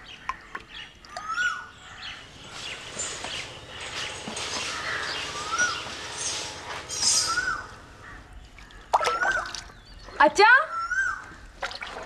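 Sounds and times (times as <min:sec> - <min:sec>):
bird call rising and falling: 0:01.1 - 0:10.1, 0:10.7 - 0:11.3
high bird chirps: 0:01.1 - 0:11.2.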